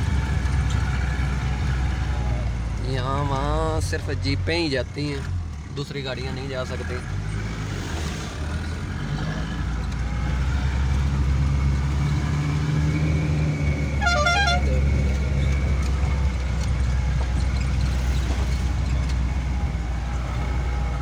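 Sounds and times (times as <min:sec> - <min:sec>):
warbling horn toot: 0:14.0 - 0:14.9.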